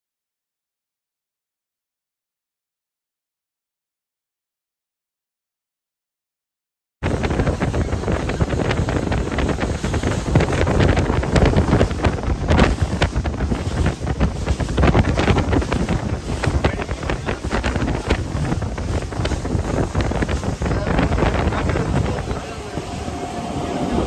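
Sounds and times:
water rushing along boat hull: 7.0 - 24.0
wind buffeting microphone: 7.0 - 24.0.

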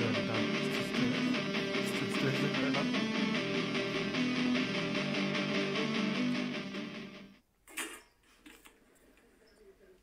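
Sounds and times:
plucked guitar music: 0.0 - 7.4.

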